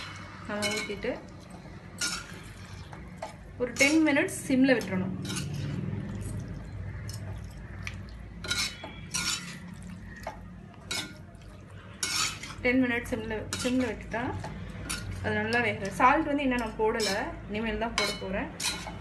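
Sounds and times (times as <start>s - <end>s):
metal spatula scraping an iron pan: 2.0s - 2.6s, 3.6s - 4.3s, 5.2s - 5.8s, 8.4s - 9.8s, 12.0s - 12.6s, 13.5s - 14.0s, 14.8s - 15.2s, 17.0s - 17.4s, 18.0s - 19.0s.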